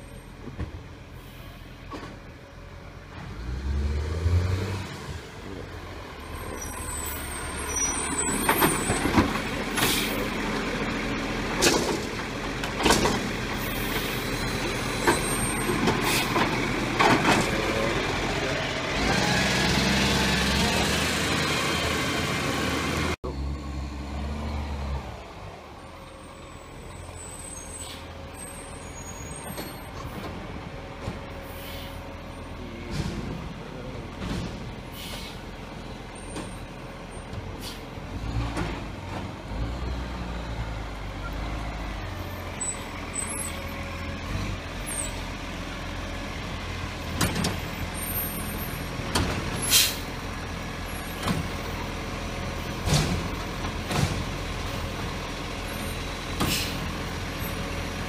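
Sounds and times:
air brake hisses: 0:09.8 - 0:10.2, 0:31.4 - 0:32.0, 0:34.9 - 0:35.4, 0:37.6 - 0:37.9, 0:49.6 - 0:50.1, 0:56.4 - 0:56.8.

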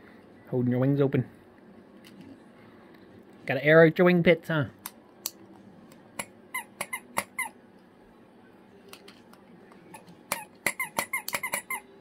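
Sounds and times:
squeaky toy squeaking: 0:06.5 - 0:07.6, 0:09.9 - 0:11.9.

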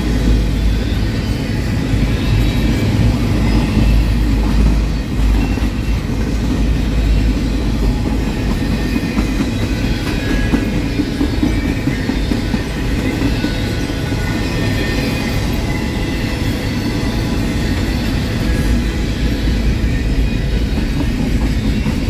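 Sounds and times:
train wheels rumbling on rail: 0:00.0 - 0:22.0.

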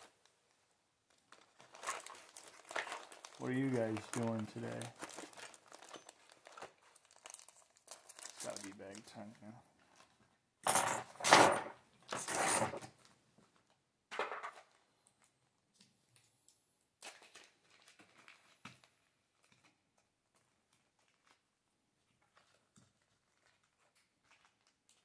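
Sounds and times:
plastic bags crinkling: 0:01.0 - 0:10.2, 0:17.0 - 0:19.6, 0:20.7 - 0:21.5, 0:22.2 - 0:25.0.

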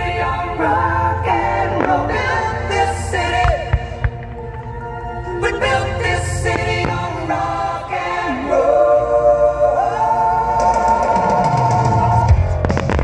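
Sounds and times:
low rumble: 0:00.0 - 0:09.0
choral singing: 0:00.0 - 0:13.0
firework bangs: 0:03.2 - 0:05.0, 0:06.5 - 0:07.6.

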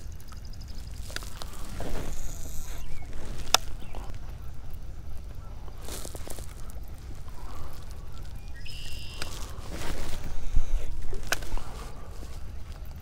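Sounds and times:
steady low rumble: 0:00.0 - 0:13.0
geese honking: 0:00.8 - 0:12.9.

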